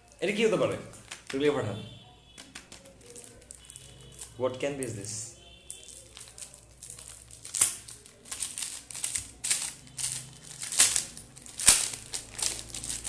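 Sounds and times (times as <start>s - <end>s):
wrapping paper crinkling: 2.4s - 4.4s, 5.7s - 13.0s.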